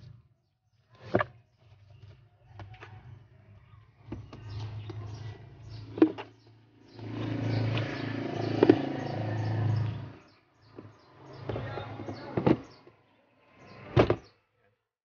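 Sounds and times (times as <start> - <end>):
plastic rubbing and scraping: 4.0 - 12.9.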